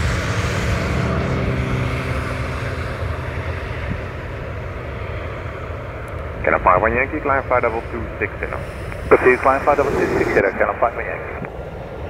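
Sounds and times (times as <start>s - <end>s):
jet engines rumbling: 0.0s - 12.0s
jet engine hiss: 6.5s - 12.0s.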